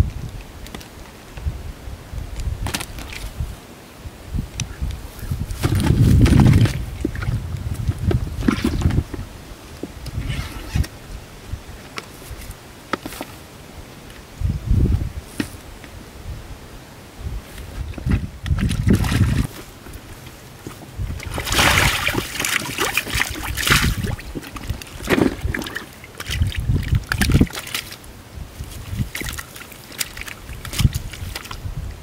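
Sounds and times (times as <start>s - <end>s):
fish splashing in a puddle: 21.2s - 28.0s, 28.8s - 31.6s.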